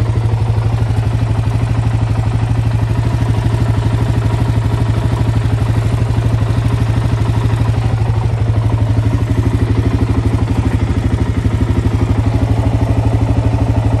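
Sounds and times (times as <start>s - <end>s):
atv engine idling: 0.0s - 14.0s.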